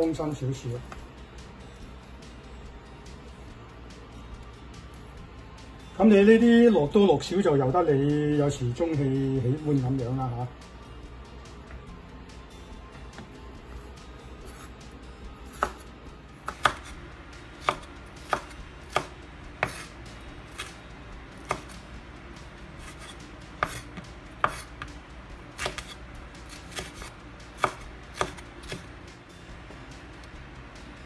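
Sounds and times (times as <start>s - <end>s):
knife striking wooden cutting board: 15.6s - 15.8s, 16.5s - 16.9s, 17.6s - 19.9s, 22.8s - 24.7s, 25.6s - 28.8s.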